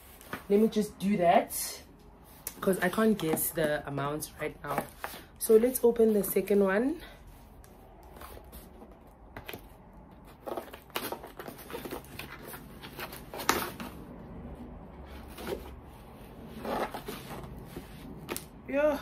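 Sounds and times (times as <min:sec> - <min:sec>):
cardboard rustling and tearing: 0:08.0 - 0:14.2, 0:15.0 - 0:18.5.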